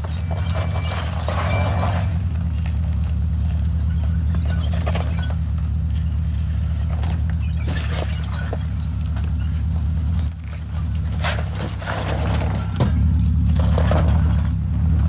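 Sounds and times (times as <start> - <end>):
tyres crunching on rock: 0.0 - 14.6
engine running low: 0.0 - 15.0.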